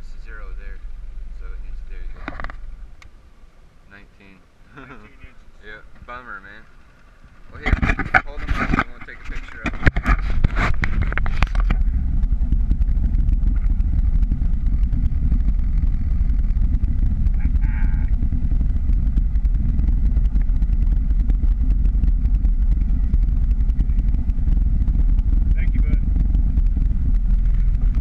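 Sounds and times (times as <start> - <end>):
wind buffeting microphone: 6.8 - 28.0.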